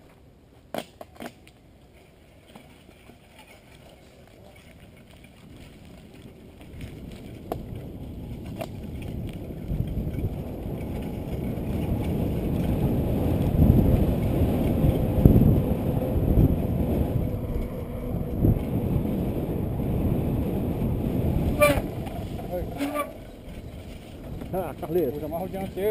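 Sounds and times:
bike rumbling on dirt track: 4.4 - 25.9
wind on microphone: 5.3 - 25.9.

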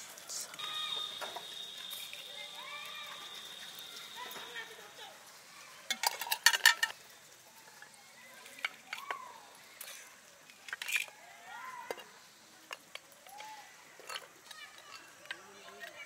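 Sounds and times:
metal spoon scraping earthenware pot: 5.9 - 7.0.

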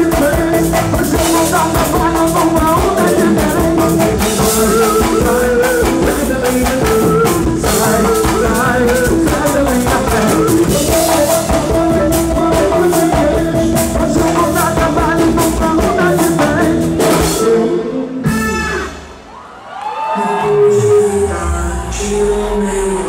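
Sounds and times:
percussion on timbales and drums: 0.0 - 17.6
lead singer singing: 0.0 - 19.0, 20.2 - 23.0
band playing live: 0.0 - 19.6.

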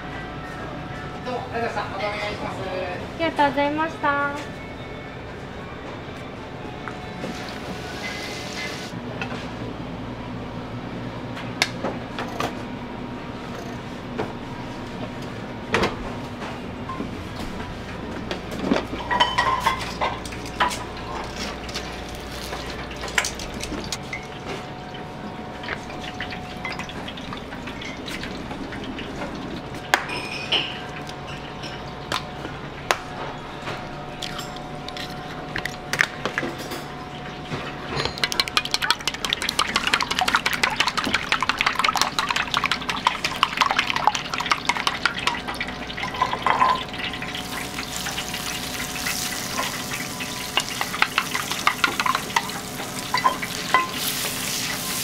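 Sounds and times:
dishes and utensils clinking: 18.6 - 24.4, 30.0 - 31.9, 34.2 - 48.3, 49.2 - 54.2
chopsticks whisking eggs in metal bowl: 38.3 - 45.4.

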